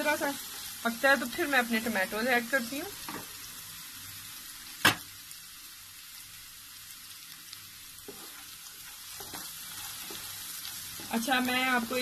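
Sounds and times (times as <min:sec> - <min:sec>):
food sizzling in oil: 0:00.0 - 0:12.0.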